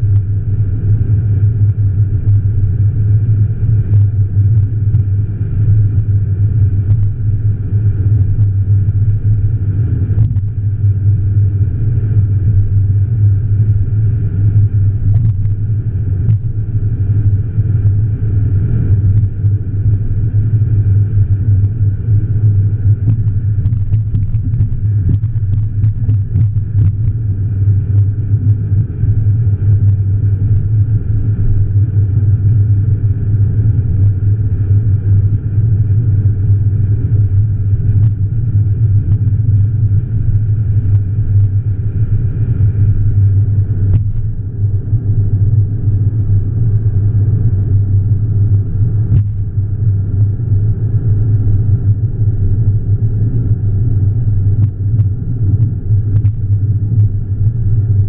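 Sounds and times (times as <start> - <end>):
car engine drone: 0.0 - 58.0
faint ticks: 15.1 - 15.6, 23.0 - 27.2, 37.9 - 38.2, 39.1 - 39.7, 43.2 - 44.8, 49.1 - 49.4, 54.6 - 57.2.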